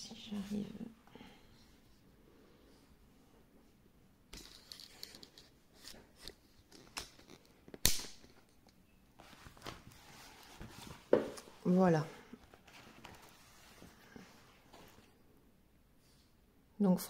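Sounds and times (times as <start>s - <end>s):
hands rustling canvas: 9.2s - 11.8s.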